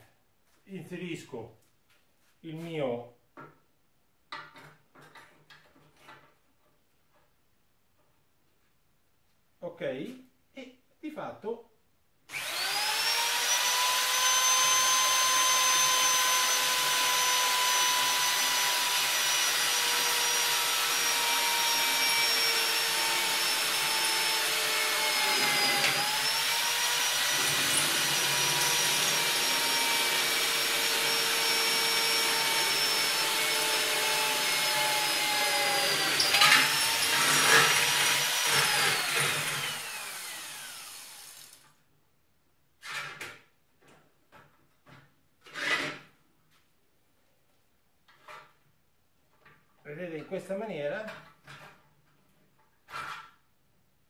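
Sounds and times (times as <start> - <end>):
electric drill motor whine: 12.3 - 41.6
drill bit scraping metal: 12.4 - 41.2.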